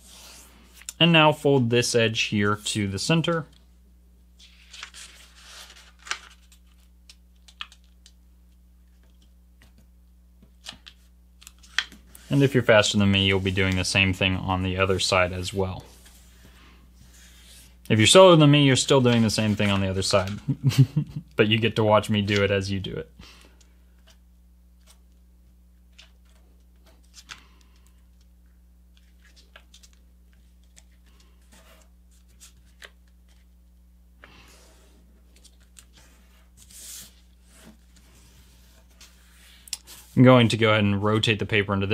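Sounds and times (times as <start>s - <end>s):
faint steady hum: 0.0s - 41.9s
paper rustling and crinkling: 4.4s - 8.2s, 10.6s - 20.6s, 28.9s - 33.6s, 34.2s - 40.2s.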